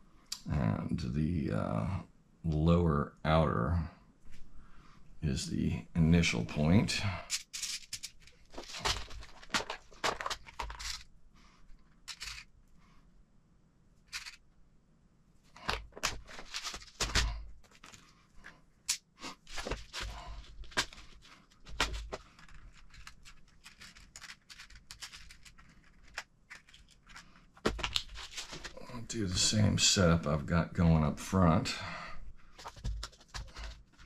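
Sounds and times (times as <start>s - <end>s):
metal screws rattling in plastic box: 7.3s - 11.1s, 12.0s - 12.5s, 14.1s - 14.4s, 20.6s - 28.7s
plastic boxes being handled: 7.3s - 11.1s, 11.7s - 12.5s, 14.1s - 14.4s, 15.5s - 29.0s, 32.4s - 34.0s.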